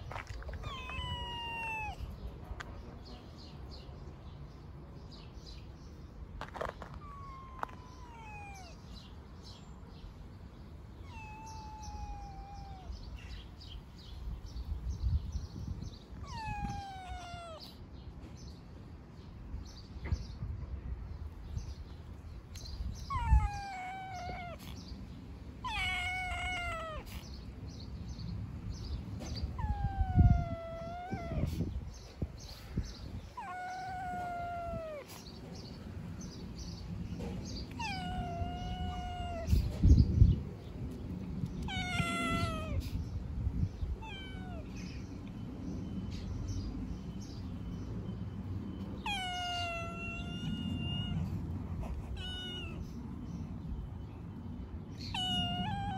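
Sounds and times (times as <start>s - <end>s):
cat meowing: 0.2s - 2.2s, 6.6s - 9.1s, 11.0s - 13.4s, 16.1s - 17.8s, 22.6s - 24.9s, 25.6s - 27.3s, 29.4s - 32.1s, 33.0s - 35.3s, 37.7s - 40.0s, 41.6s - 43.0s, 43.8s - 45.0s, 49.0s - 53.0s, 55.0s - 55.9s.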